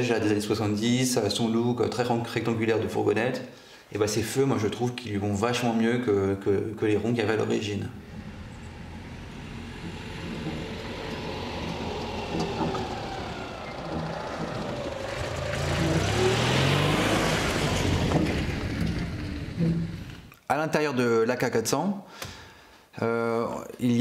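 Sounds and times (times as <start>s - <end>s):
van engine driving past: 7.5s - 20.3s
tyres on gravel: 8.0s - 20.3s.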